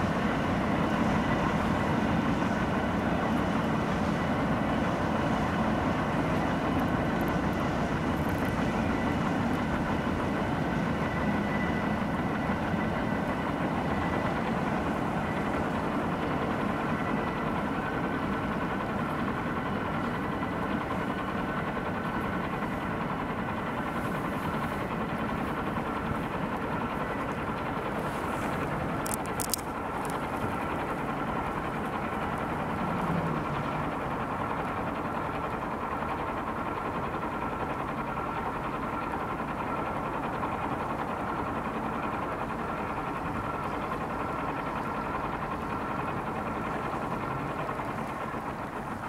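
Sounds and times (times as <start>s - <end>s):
mechanical running noise: 22.4s - 49.0s.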